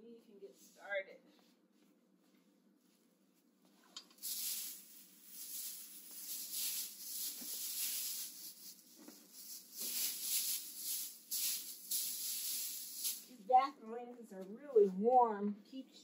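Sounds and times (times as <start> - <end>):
bedding rustling: 1.3 - 13.5.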